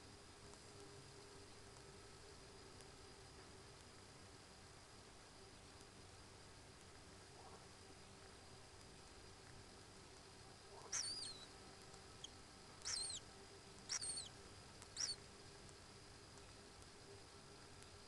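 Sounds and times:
kingfisher whistled calls: 10.9s - 11.5s, 12.8s - 13.2s, 13.9s - 14.3s, 15.0s - 15.2s.

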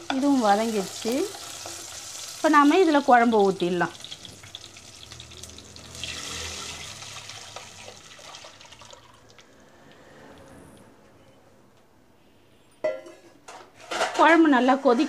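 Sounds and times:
gravy pouring and splashing: 3.4s - 9.8s.

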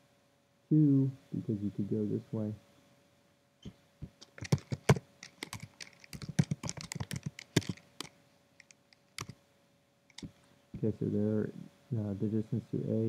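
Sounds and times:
keyboard key clicks: 4.2s - 9.4s.

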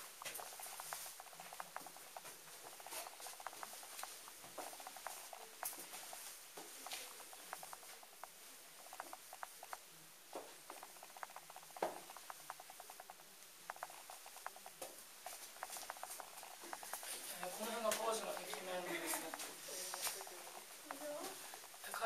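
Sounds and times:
footsteps in a tunnel: 0.0s - 8.0s, 11.8s - 12.4s, 13.8s - 22.0s.

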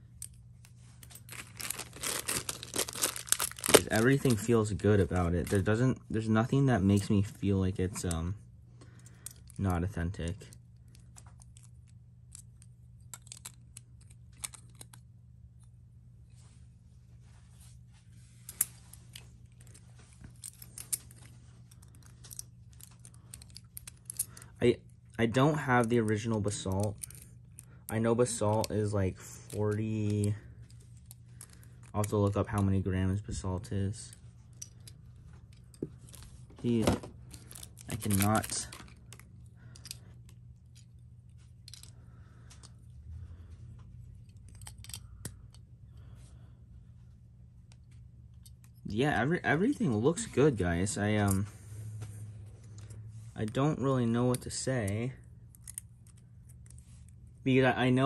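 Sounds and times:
faint steady hum: 0.0s - 58.0s
metal and plastic parts clicking: 10.4s - 15.0s, 19.1s - 24.5s, 25.8s - 28.8s, 41.6s - 41.9s, 44.2s - 45.6s
plastic and metal parts clicking: 12.3s - 15.0s.

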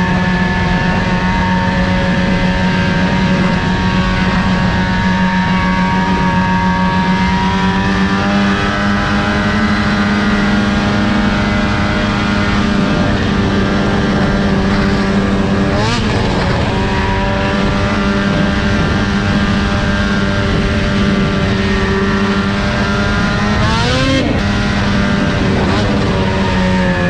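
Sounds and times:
snowmobile engine running: 0.0s - 27.0s.

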